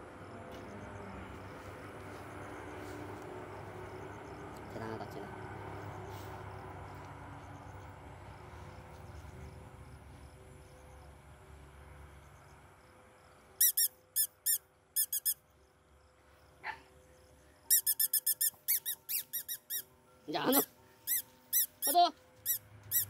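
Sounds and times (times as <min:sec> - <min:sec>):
faint outdoor background: 0:00.0 - 0:23.0
squeaky dog toy squeaking: 0:13.6 - 0:15.4, 0:17.7 - 0:23.0.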